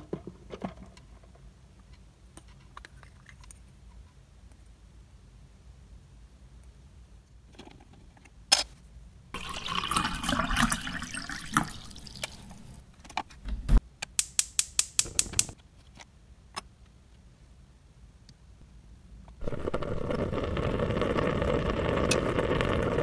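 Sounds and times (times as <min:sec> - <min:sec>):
water running into a pot: 0:09.4 - 0:12.8
sharp clicks: 0:14.0 - 0:15.6.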